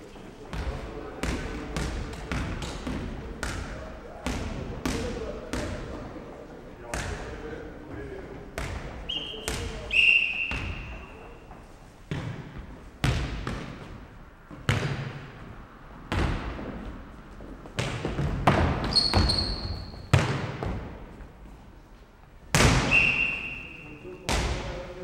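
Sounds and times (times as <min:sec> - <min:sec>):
short high squeaks: 0:18.9 - 0:20.1.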